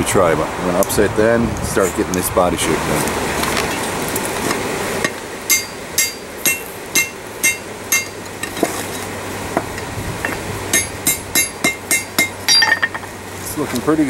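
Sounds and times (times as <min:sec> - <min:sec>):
hammer striking steel on anvil: 0:05.0 - 0:08.7, 0:10.3 - 0:13.1.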